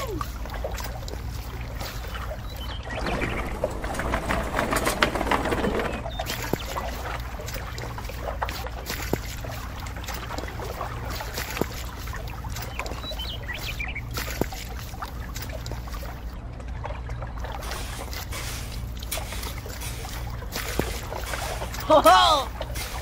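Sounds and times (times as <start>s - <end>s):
steady low hum: 0.0s - 23.0s
wet concrete pouring and slopping: 0.0s - 23.0s.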